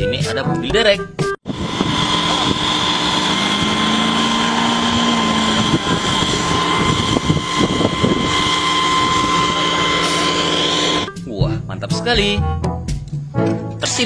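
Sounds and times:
diesel engine running under load: 1.4s - 11.1s
high whine: 1.5s - 11.2s.

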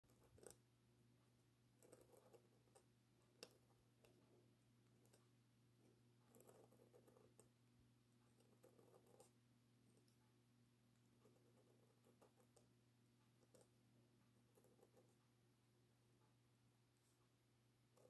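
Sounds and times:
pen nib scratching paper: 0.1s - 0.6s, 1.8s - 5.3s, 6.2s - 7.5s, 8.2s - 10.1s, 11.0s - 12.7s, 13.4s - 13.8s, 14.4s - 15.2s.

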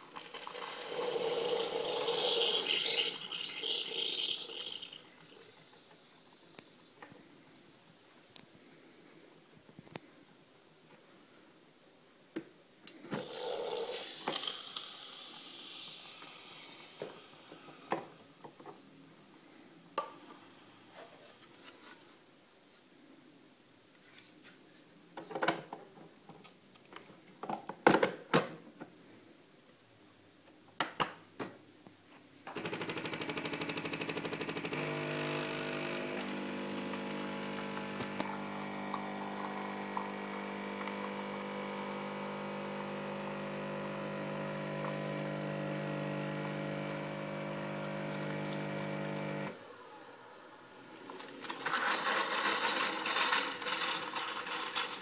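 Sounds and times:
water pump humming: 0.1s - 6.2s, 32.6s - 50.0s.

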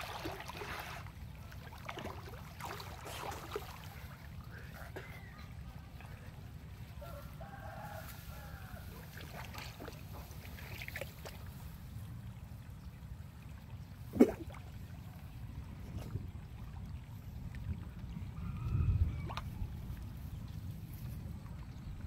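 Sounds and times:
distant rooster crowing: 7.0s - 9.1s, 18.4s - 19.7s.

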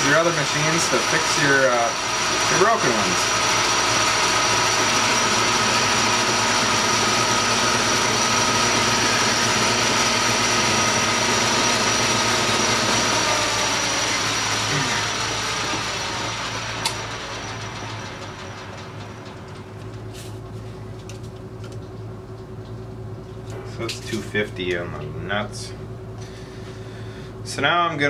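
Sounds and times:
metal lathe whining: 0.0s - 19.5s.

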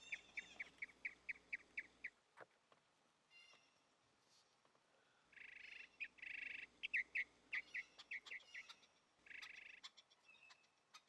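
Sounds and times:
goldfinch down-slurred chirps: 0.0s - 2.1s, 5.4s - 11.0s.

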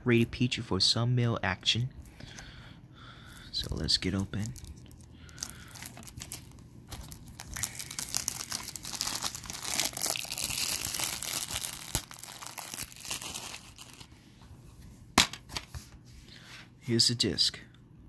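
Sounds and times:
plastic wrap crinkling: 3.4s - 14.2s.

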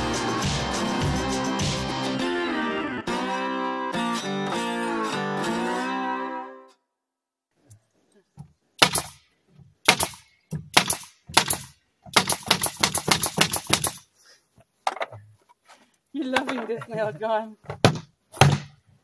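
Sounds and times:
guitar music: 0.0s - 6.8s
nail gun firing into wood: 8.8s - 9.2s, 9.8s - 14.0s, 17.9s - 18.8s.

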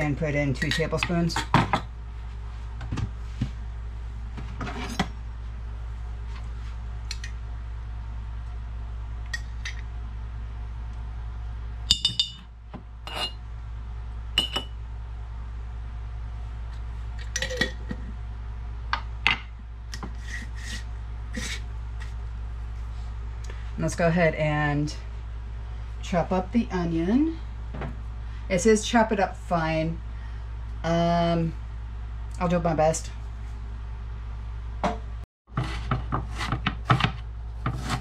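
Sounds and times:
steady low hum: 0.0s - 38.0s
ringing glass taps: 11.9s - 12.4s
metal spoon scraping glass jars: 13.1s - 13.4s.

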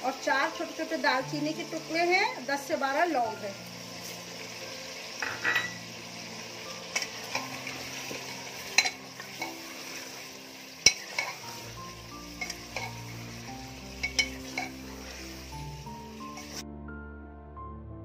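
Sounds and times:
meat sizzling in oil: 0.0s - 16.6s
ladle clinking against pot: 5.2s - 5.8s, 8.7s - 9.5s.

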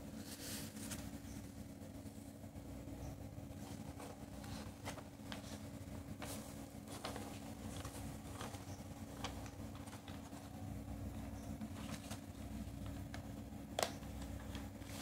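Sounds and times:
low hum with rumble: 0.0s - 15.0s
small clicks and rustles: 3.7s - 10.5s.

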